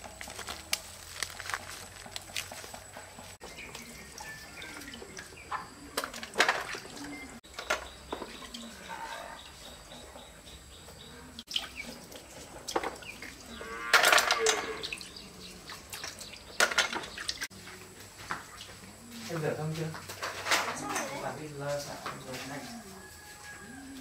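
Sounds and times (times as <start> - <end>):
cow mooing: 13.5 - 15.0.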